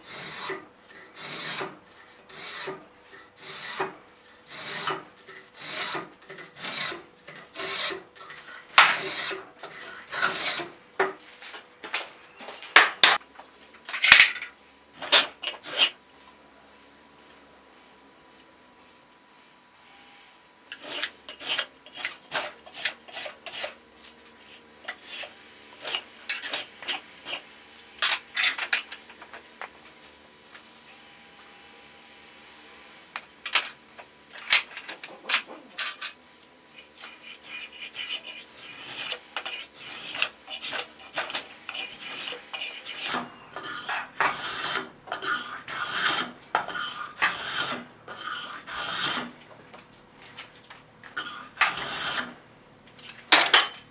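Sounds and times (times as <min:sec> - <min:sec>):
hand tool scraping wood: 0:00.0 - 0:11.6, 0:15.0 - 0:16.0, 0:20.7 - 0:29.0, 0:34.4 - 0:49.4, 0:51.1 - 0:52.4.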